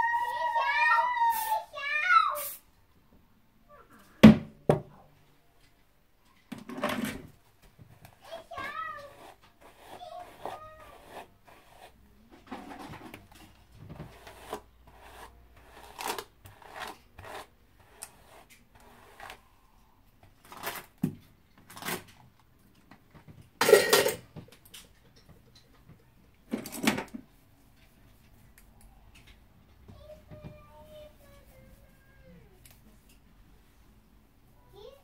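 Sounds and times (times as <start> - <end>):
hair brushing strokes: 0.2 - 2.6, 8.2 - 12.0.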